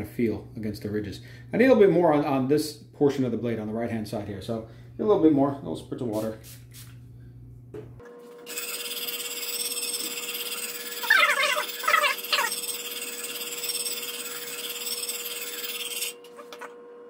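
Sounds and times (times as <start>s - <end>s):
knife sharpener gritty rasp: 8.5s - 16.3s.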